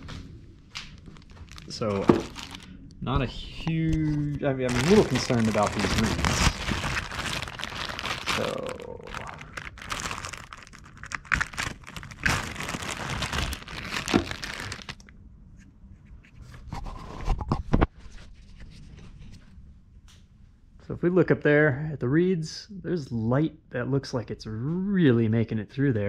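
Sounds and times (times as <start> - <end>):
plastic bag crinkling: 0.9 - 2.9, 4.6 - 15.1.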